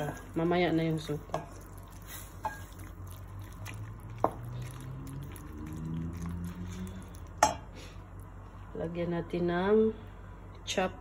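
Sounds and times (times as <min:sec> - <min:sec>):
spoon stirring thick stew: 0:00.0 - 0:07.6.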